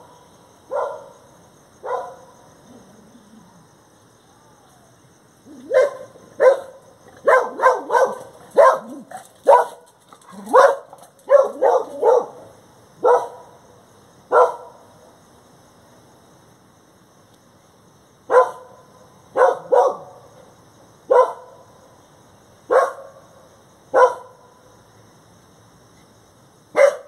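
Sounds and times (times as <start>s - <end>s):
dog barking: 0.7s - 1.2s, 1.8s - 2.3s, 5.6s - 13.5s, 14.3s - 14.8s, 18.3s - 18.7s, 19.4s - 20.2s, 21.1s - 21.5s, 22.7s - 23.2s, 23.9s - 24.4s, 26.8s - 27.0s.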